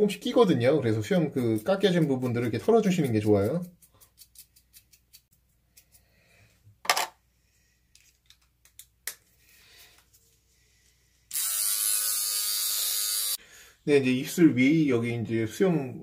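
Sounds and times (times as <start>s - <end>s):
electric beard trimmer buzzing: 11.3s - 13.4s.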